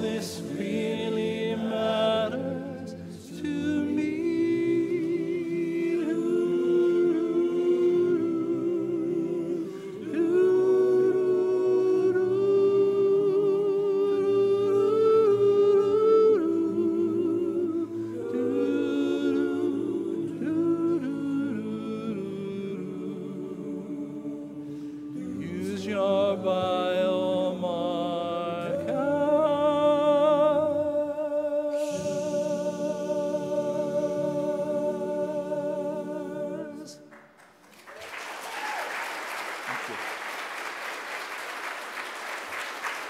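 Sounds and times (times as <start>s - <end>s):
male vocal group singing in harmony: 0.0s - 37.1s
applause: 37.1s - 43.0s.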